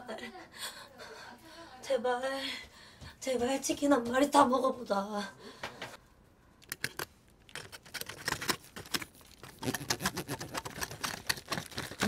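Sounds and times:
plastic cutlery cutting on foil: 0:07.6 - 0:12.0.

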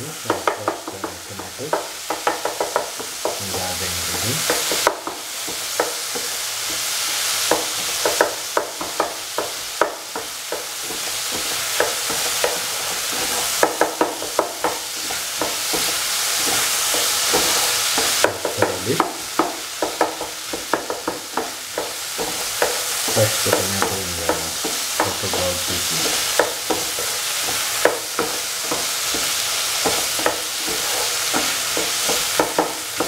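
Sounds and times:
curry sizzling in oil: 0:00.0 - 0:33.0
utensil scraping and tapping pan: 0:00.3 - 0:03.5, 0:04.1 - 0:33.0.

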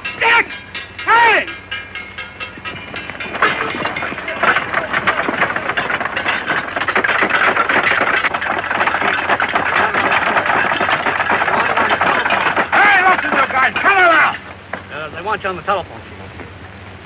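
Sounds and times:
knocks and clatters: 0:00.0 - 0:15.5
crowd scrambling onto benches: 0:02.7 - 0:15.4.

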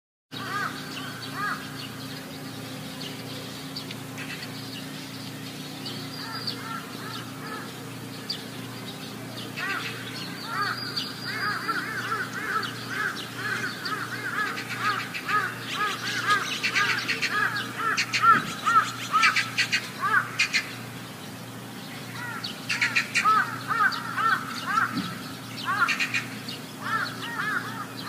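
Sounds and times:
flock of birds calling: 0:00.4 - 0:28.0.

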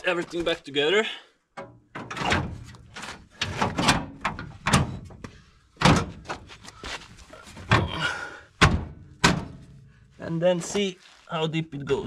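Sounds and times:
metal car panel clunking: 0:08.6 - 0:09.8.

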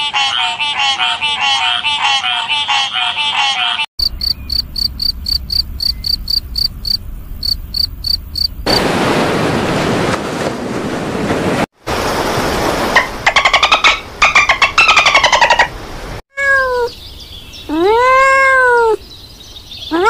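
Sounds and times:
frog call: 0:04.0 - 0:08.5
cricket chirping: 0:04.0 - 0:08.8
ocean surf washing: 0:08.6 - 0:16.2.

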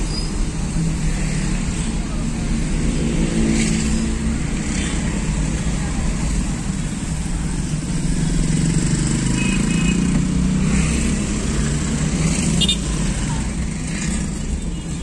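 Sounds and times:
car engine hum and road noise: 0:00.0 - 0:15.0
motorcycles passing close: 0:00.7 - 0:15.0.

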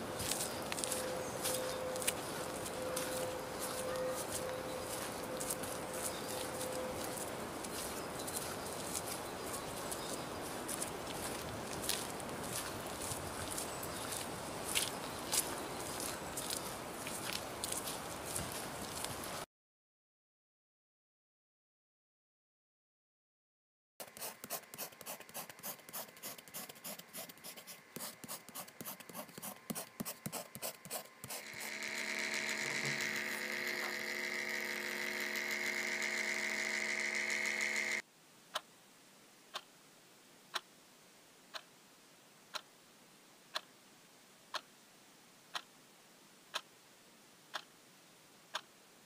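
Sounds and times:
pen scratching on paper: 0:24.0 - 0:33.1
high-pitched mechanical whir: 0:31.3 - 0:38.0
regular ticking: 0:31.4 - 0:38.0.

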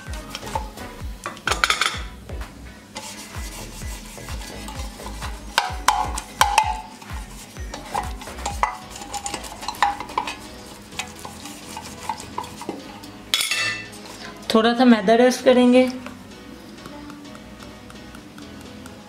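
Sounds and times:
brushing oil on metal pan: 0:03.0 - 0:14.4.

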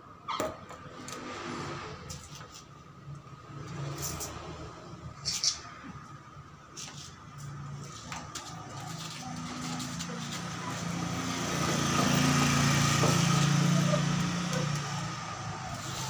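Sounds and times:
engine running with low hum: 0:05.8 - 0:16.0.

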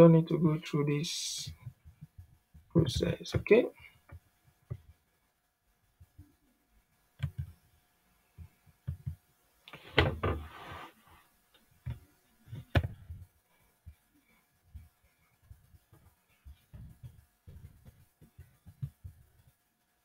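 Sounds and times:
noisy rustle: 0:09.7 - 0:11.3.

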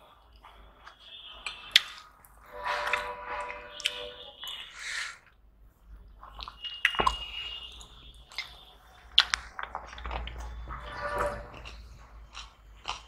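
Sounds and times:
lip smacks and chewing: 0:00.2 - 0:02.4, 0:06.2 - 0:13.0
sharp wet clicks: 0:07.8 - 0:10.5.

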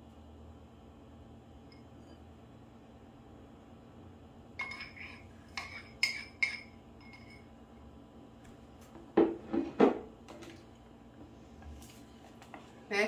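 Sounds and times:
spoon clinking against bowl: 0:04.6 - 0:07.5.

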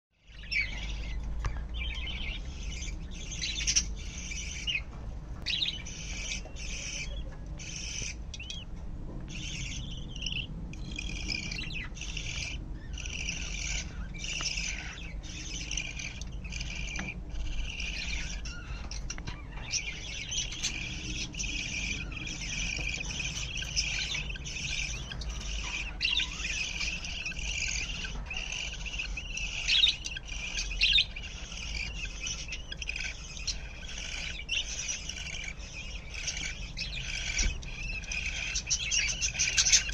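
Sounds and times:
budgerigars chirping: 0:00.2 - 0:39.9.

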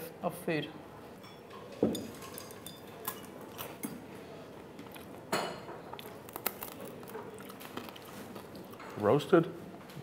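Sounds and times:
chopsticks clinking on porcelain dishes: 0:01.2 - 0:03.9.

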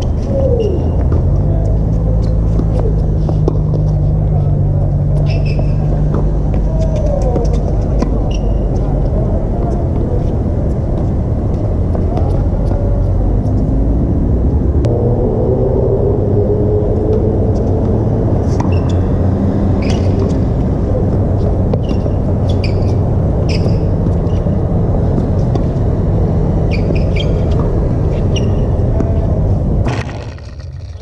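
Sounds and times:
low rumble with hum: 0:00.0 - 0:31.0
tennis ball bouncing: 0:01.9 - 0:04.4, 0:05.1 - 0:10.3, 0:18.5 - 0:19.0, 0:21.4 - 0:25.9, 0:26.6 - 0:29.2.

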